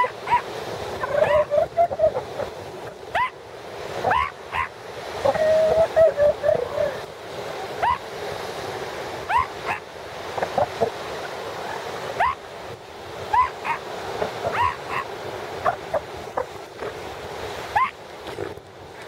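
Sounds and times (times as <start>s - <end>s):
seals yelping: 0.0s - 3.4s, 4.0s - 7.1s, 7.7s - 8.1s, 9.2s - 9.9s, 11.6s - 12.5s, 13.2s - 16.9s, 17.7s - 18.0s
surf washing: 0.0s - 19.0s.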